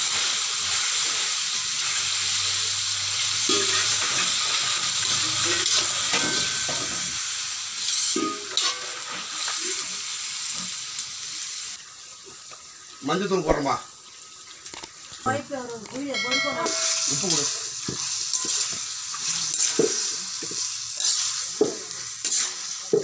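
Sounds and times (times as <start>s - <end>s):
chicken sizzling in hot oil: 0.0s - 23.0s
metal spoon scraping pan: 3.5s - 7.2s, 16.2s - 23.0s.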